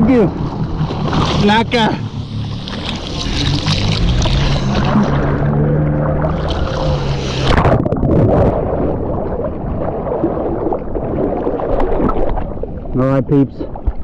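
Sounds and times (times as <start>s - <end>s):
boat motor running: 0.0s - 9.7s
rushing water: 0.0s - 14.0s
wind noise: 6.2s - 12.6s.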